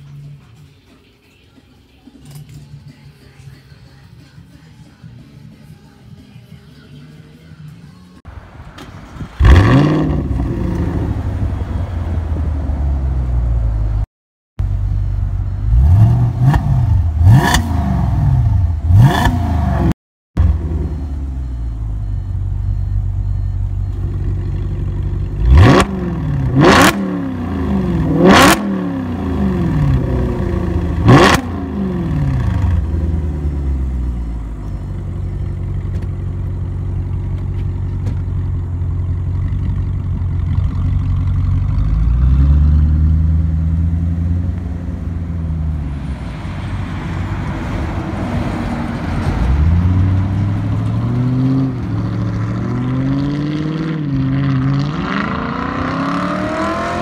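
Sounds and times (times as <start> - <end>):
car engine revving: 9.0 - 13.4, 14.9 - 34.2, 35.1 - 57.0
car engine idling: 20.4 - 25.7, 32.2 - 42.2.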